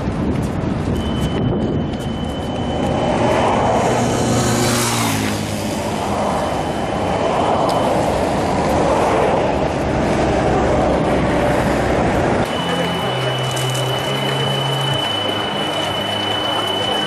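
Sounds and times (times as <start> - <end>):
outdoor rumble: 0.0 - 17.0
vehicle passing by: 2.6 - 16.2.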